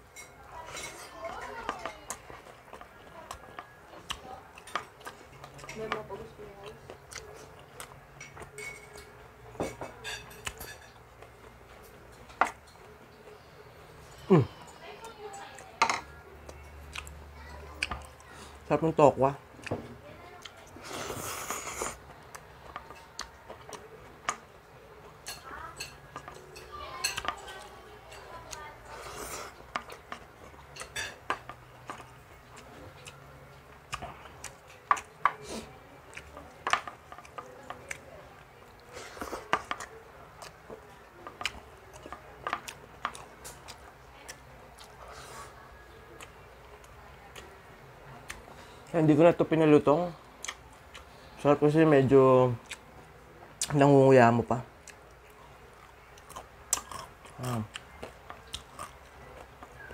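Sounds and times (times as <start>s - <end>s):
cutlery clinking on a plate: 8.2s - 11.0s.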